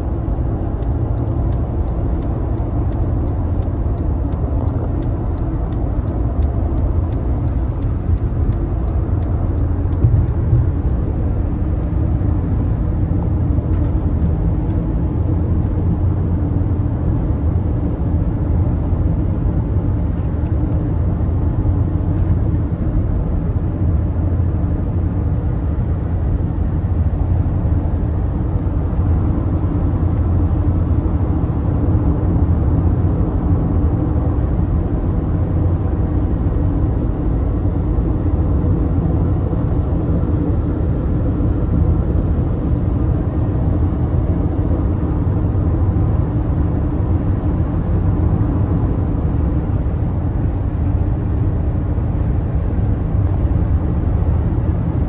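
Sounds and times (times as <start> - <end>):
car engine and tyres rumbling: 0.0 - 55.0.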